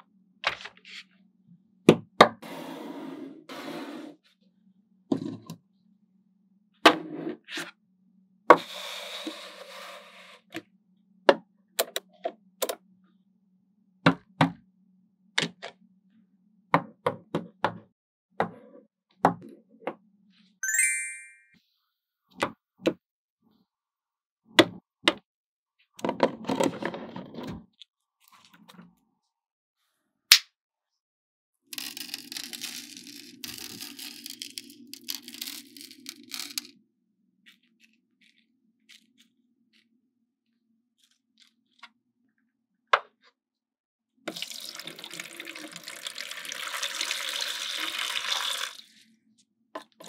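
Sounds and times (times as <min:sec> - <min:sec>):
high ringing tone: 0:20.6 - 0:21.6.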